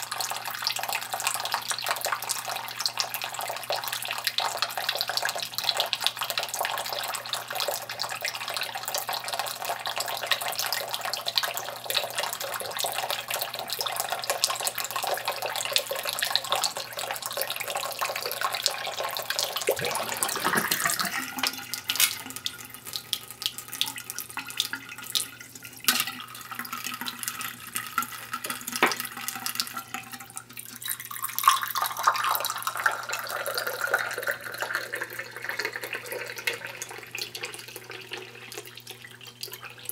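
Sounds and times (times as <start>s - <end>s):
water pouring into ceramic cup: 0.0s - 39.9s
tap water splashing into sink: 17.6s - 33.2s.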